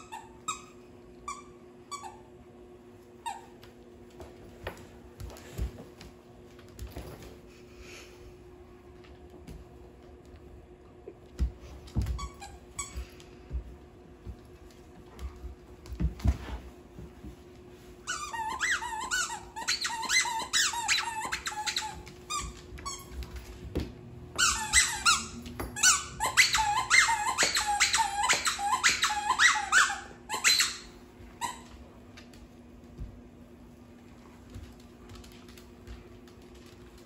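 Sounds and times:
squeaky dog toy: 0.0 - 2.3, 18.1 - 23.1, 24.4 - 31.7.

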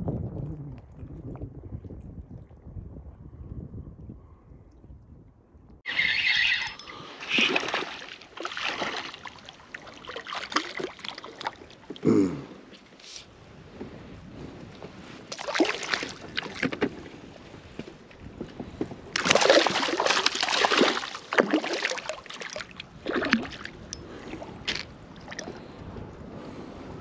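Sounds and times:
fish splashing in water: 5.9 - 11.9, 15.3 - 16.7, 19.2 - 23.9.

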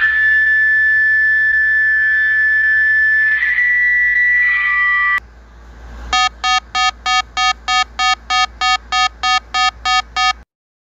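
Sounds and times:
held alarm tone: 6.1 - 10.4
fast repeating electronic beeps: 6.2 - 10.4.

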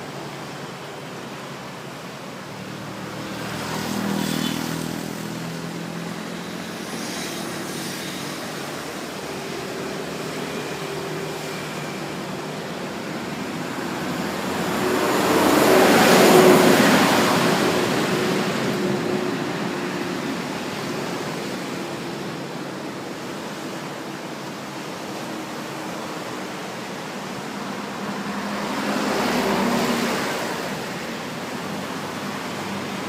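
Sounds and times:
surf: 0.0 - 33.0
wind: 0.0 - 33.0
motor vehicle passing: 13.2 - 21.7.

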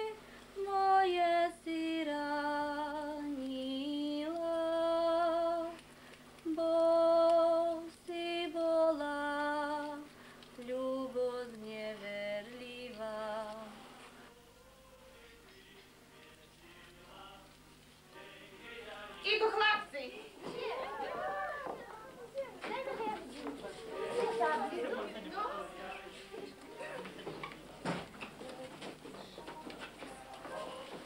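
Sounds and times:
woman singing folk song: 0.0 - 14.0.

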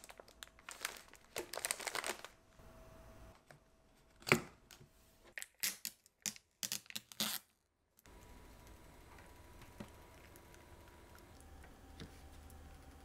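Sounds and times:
plastic packaging crinkling: 0.0 - 2.4.

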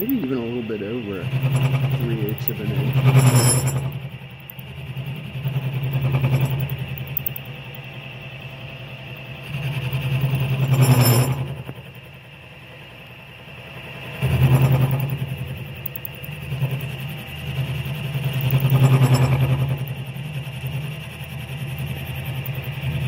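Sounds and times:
milling machine cutting steel: 0.0 - 7.9, 14.2 - 23.0.

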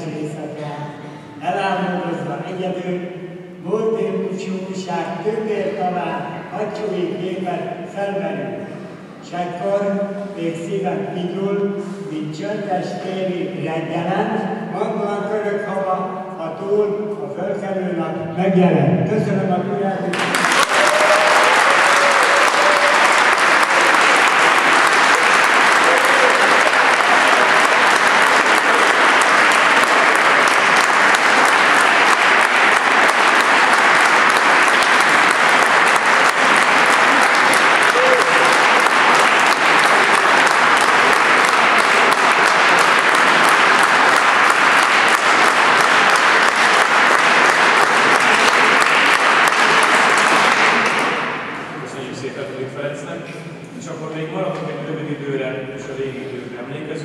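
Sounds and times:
audience applauding: 20.1 - 51.7.

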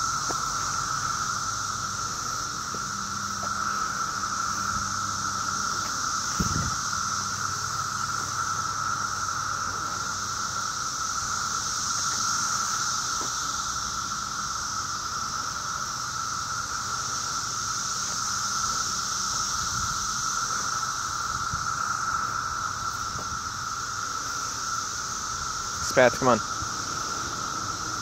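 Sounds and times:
cicadas calling: 0.0 - 28.0.

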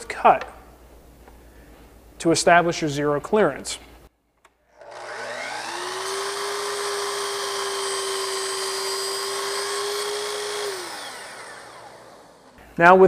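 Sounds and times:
miter saw whining: 4.8 - 12.6.

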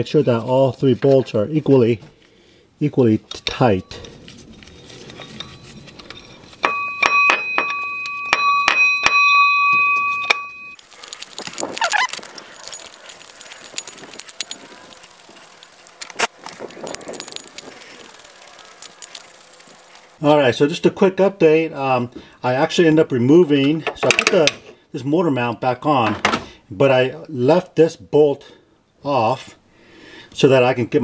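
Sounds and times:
high two-note ringing tone: 6.6 - 10.8.

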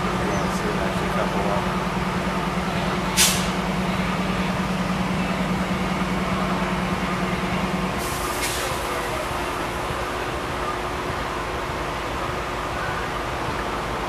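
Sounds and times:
diesel locomotive humming: 0.0 - 14.0
air hiss: 3.2 - 3.6.

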